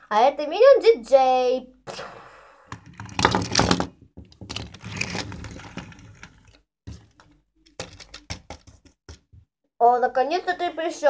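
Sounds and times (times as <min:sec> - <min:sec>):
plastic toy figures clattering: 0:02.8 - 0:09.4.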